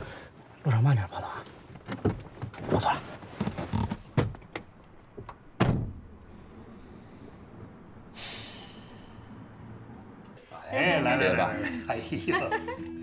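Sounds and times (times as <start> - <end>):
car door shutting: 4.2 - 6.1.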